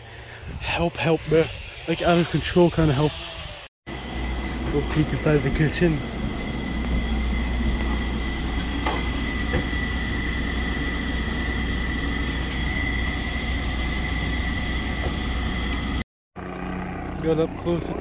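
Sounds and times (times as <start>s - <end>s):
high whine: 0.0s - 18.0s
exhaust fan humming: 3.9s - 18.0s.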